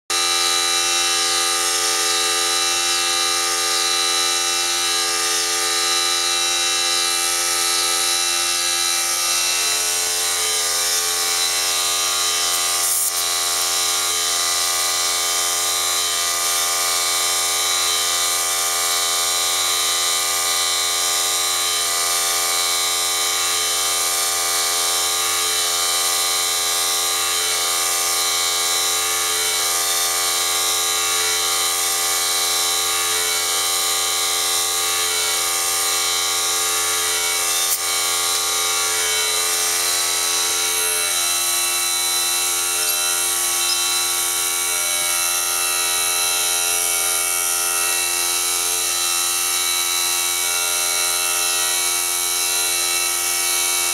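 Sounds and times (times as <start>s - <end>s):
air compressor motor whining: 0.0s - 53.8s.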